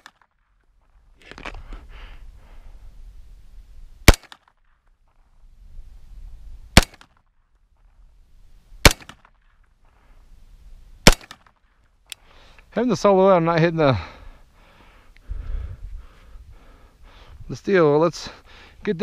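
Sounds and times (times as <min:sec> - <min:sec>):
pistol shots: 0:04.0 - 0:04.5, 0:06.8 - 0:07.2, 0:08.8 - 0:09.4, 0:11.0 - 0:11.5.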